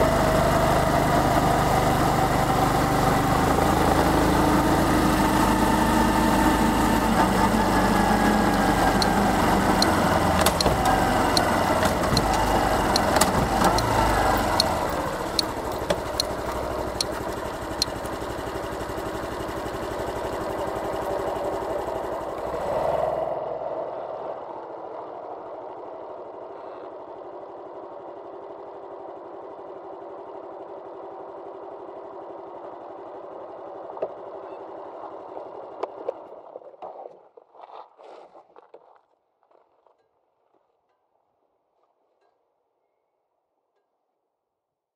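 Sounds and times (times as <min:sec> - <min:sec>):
motorcycle engine running: 0:00.0 - 0:22.6.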